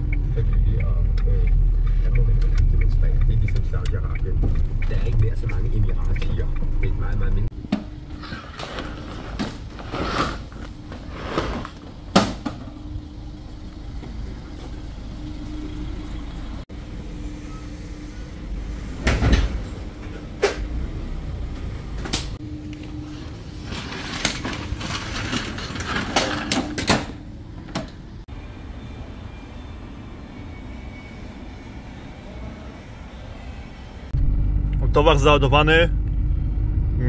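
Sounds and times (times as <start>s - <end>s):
tarpaulin rustling: 22.9s - 26.5s.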